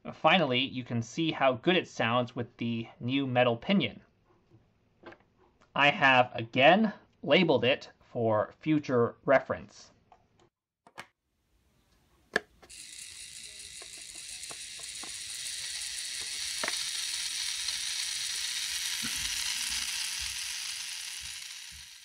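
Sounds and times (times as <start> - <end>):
small electric motor whirring: 12.4 - 22.0.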